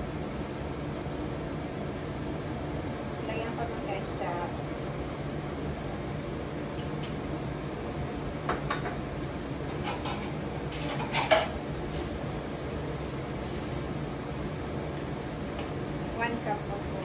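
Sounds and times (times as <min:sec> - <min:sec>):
steady low hum: 0:00.0 - 0:17.0
utensils clinking on cookware: 0:09.8 - 0:11.6.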